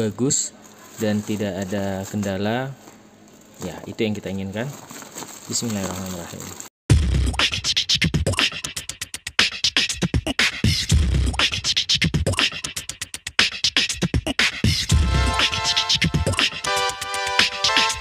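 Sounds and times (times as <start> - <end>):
drum-heavy background music: 6.9 - 18.0.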